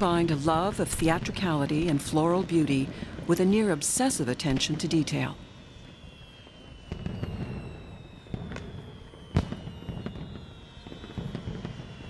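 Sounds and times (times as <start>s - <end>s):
fireworks crackling: 0.0s - 12.0s
fireworks popping: 0.0s - 12.0s
fireworks bang: 6.5s - 12.0s.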